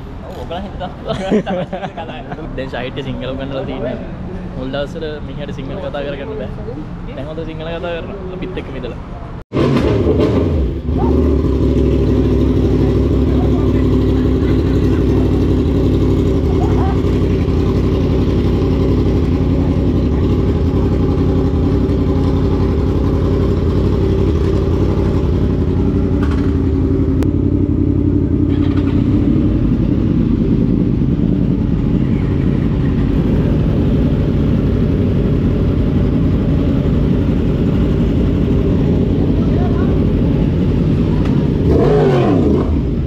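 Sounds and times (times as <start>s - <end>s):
motorcycles idling: 10.7s - 43.0s.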